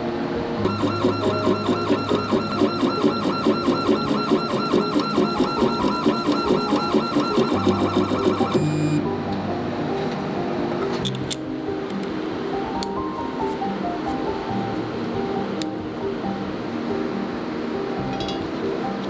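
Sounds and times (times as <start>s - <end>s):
stepper motors whining: 0.7s - 9.0s.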